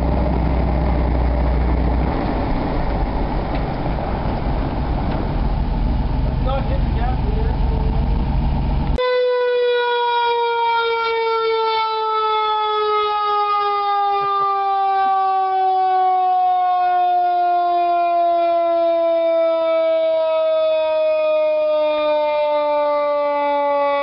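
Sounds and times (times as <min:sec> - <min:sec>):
fire truck engine running: 0:00.0 - 0:24.0
mechanical siren wailing: 0:08.2 - 0:24.0.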